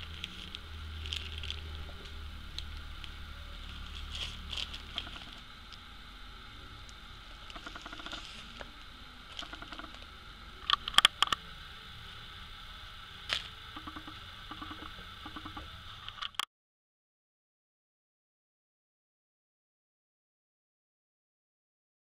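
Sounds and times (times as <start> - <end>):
plastic packaging rustling: 0.0 - 5.5.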